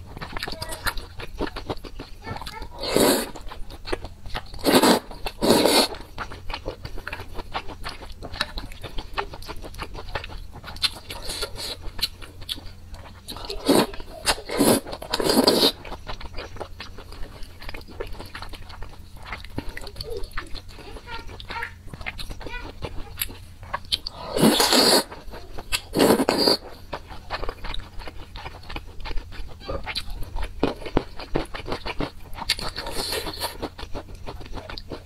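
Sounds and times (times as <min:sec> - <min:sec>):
wet chewing: 0:00.0 - 0:35.0
slurping noodles: 0:02.8 - 0:03.5, 0:04.6 - 0:06.1, 0:13.6 - 0:15.8, 0:24.1 - 0:26.7.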